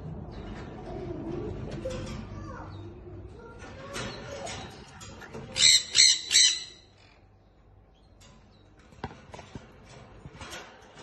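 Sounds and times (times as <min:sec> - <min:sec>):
lovebird squawking: 0:05.6 - 0:06.9.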